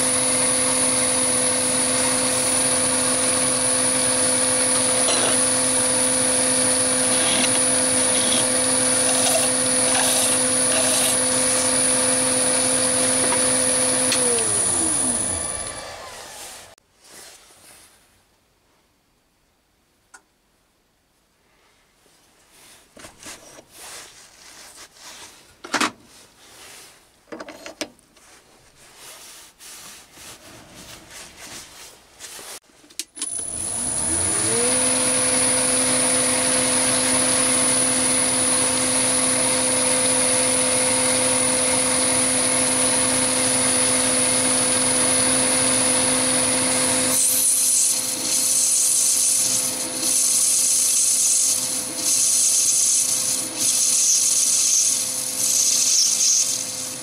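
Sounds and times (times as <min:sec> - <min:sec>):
lathe tool cutting metal: 0:00.0 - 0:16.4, 0:33.4 - 0:57.0
lathe motor whining: 0:00.0 - 0:16.8, 0:33.2 - 0:57.0.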